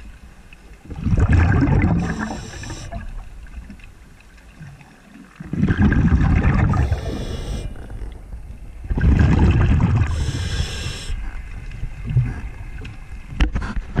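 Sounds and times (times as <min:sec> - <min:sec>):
underwater bubbles rumbling: 0:00.0 - 0:14.0
breathing hiss: 0:02.0 - 0:03.0, 0:06.7 - 0:07.9, 0:10.0 - 0:11.4.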